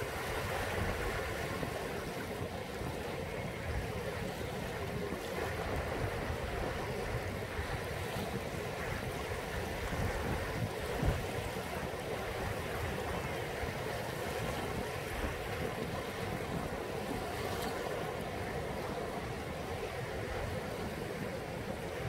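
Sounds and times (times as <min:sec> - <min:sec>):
small waves washing onto sand: 0:00.0 - 0:22.0
wind buffeting microphone: 0:00.0 - 0:22.0.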